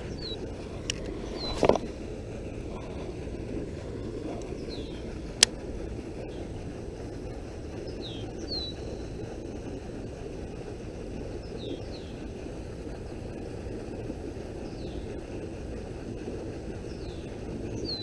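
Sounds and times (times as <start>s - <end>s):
low outdoor rumble: 0.0s - 18.0s
bird chirping: 0.1s - 0.4s, 4.4s - 5.1s, 7.9s - 8.9s.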